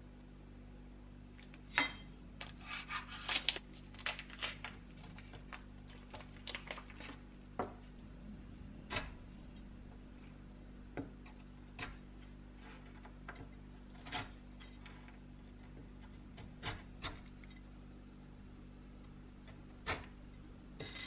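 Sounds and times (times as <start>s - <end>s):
plastic wrapping crinkling and tearing: 2.5s - 7.2s.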